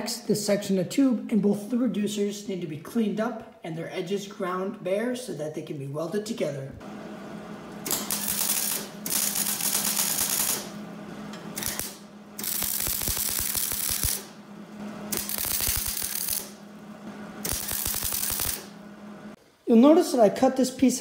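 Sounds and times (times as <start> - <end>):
welding arc crackling: 7.1 - 19.4.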